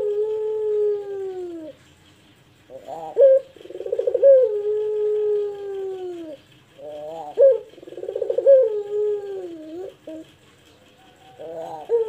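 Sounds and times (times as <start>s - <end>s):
dove cooing: 0.0s - 1.9s, 2.7s - 12.0s.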